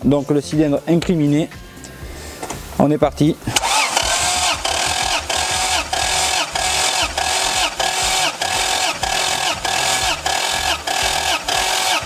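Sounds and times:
starter motor cranking engine: 0:03.5 - 0:12.0.

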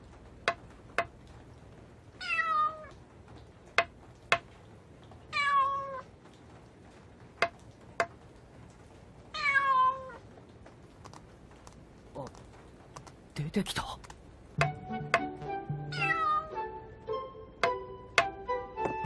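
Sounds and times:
cat meowing: 0:02.2 - 0:03.0, 0:05.3 - 0:06.1, 0:09.3 - 0:10.2, 0:15.9 - 0:16.7
sharp knocks: 0:17.6 - 0:19.0.

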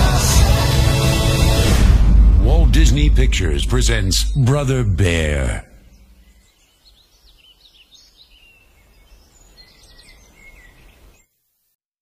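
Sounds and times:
low outdoor rumble: 0:00.8 - 0:06.4
faint bird chirps: 0:05.7 - 0:11.6.

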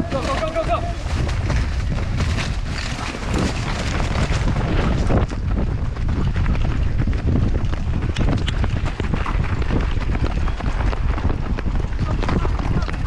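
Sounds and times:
rattling gear: 0:00.0 - 0:05.4
boots running on dry dirt: 0:00.0 - 0:13.0
wind buffeting microphone: 0:00.0 - 0:13.0.

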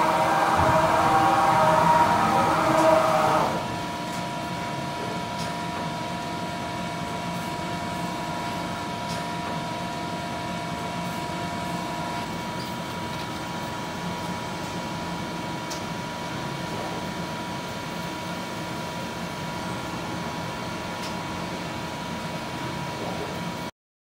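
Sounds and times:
lower machine tone: 0:00.0 - 0:12.7
machine mechanical hum: 0:00.0 - 0:23.7.

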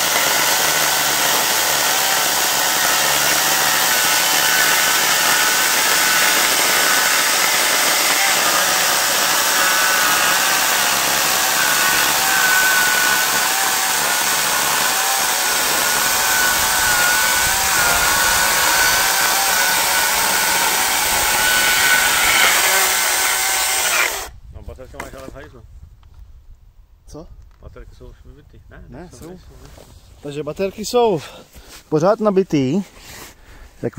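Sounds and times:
electric chainsaw cutting log: 0:00.0 - 0:24.3.

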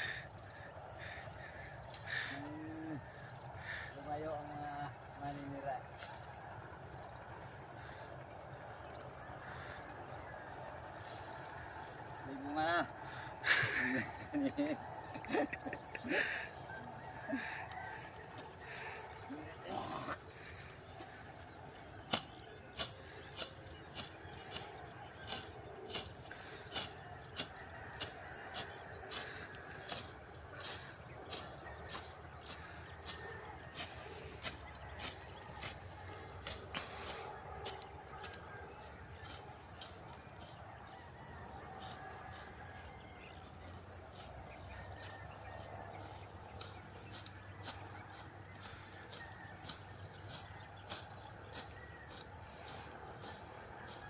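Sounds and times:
insects droning: 0:00.0 - 0:54.0
sickle swishing through grass: 0:18.3 - 0:54.0.

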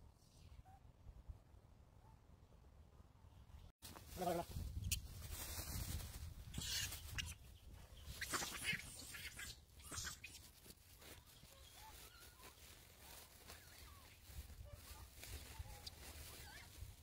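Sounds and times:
monkeys rustling and scuffling: 0:03.8 - 0:17.0.

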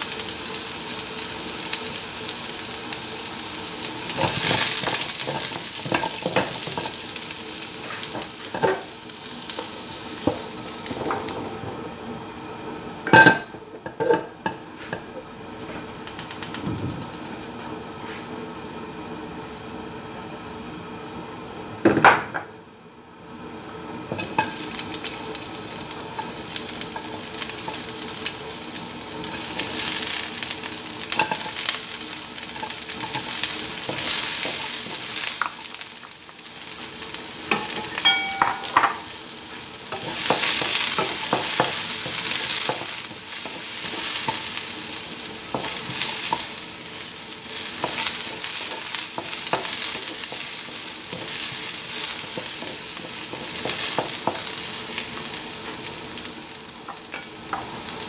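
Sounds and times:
onion sizzling in hot oil: 0:00.0 - 0:12.0, 0:24.1 - 0:58.0.

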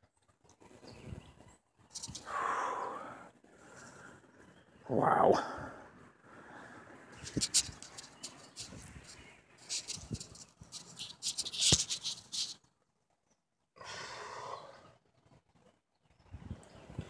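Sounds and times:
steady hiss: 0:06.8 - 0:12.6.

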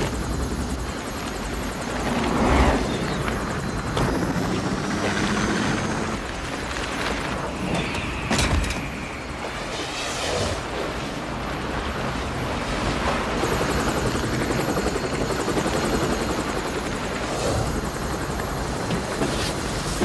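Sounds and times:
helicopter rotor chopping: 0:00.0 - 0:06.4, 0:13.3 - 0:20.0
rushing wind: 0:00.0 - 0:20.0.

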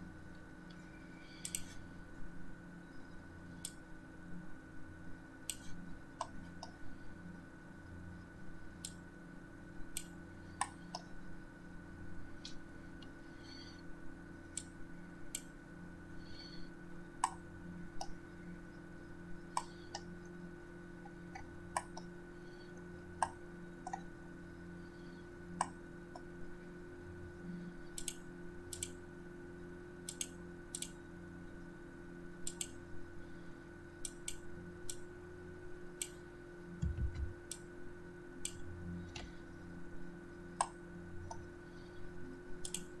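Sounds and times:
steady hum: 0:00.0 - 0:43.0
computer mouse clicks: 0:00.7 - 0:01.8, 0:05.4 - 0:06.8, 0:14.5 - 0:15.5, 0:17.2 - 0:17.4, 0:19.5 - 0:20.1, 0:27.9 - 0:29.0, 0:30.0 - 0:31.0, 0:32.4 - 0:32.8, 0:34.0 - 0:35.1, 0:36.0 - 0:36.2, 0:36.8 - 0:37.7, 0:38.4 - 0:39.4, 0:42.6 - 0:43.0.

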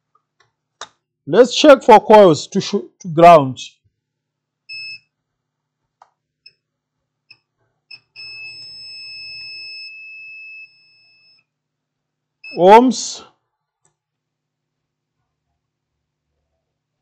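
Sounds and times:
multimeter beeping: 0:04.7 - 0:05.1, 0:07.3 - 0:11.5.

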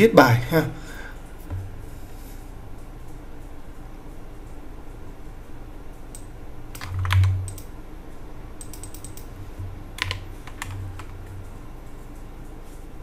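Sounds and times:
keyboard key clicks: 0:06.2 - 0:07.7, 0:10.0 - 0:11.2.

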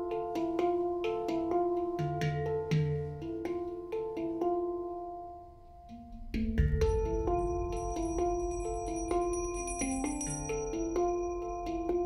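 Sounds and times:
pitched percussion ringing: 0:05.8 - 0:12.0.

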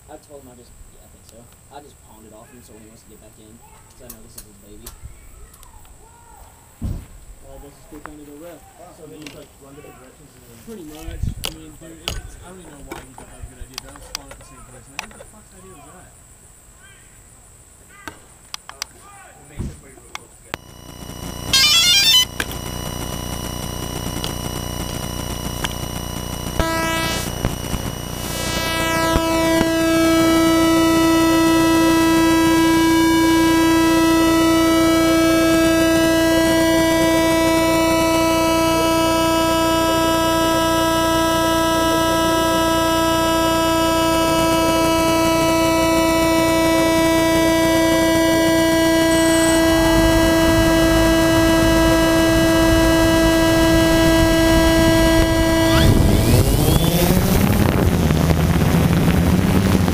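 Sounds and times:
drone motors humming: 0:20.6 - 0:59.9.

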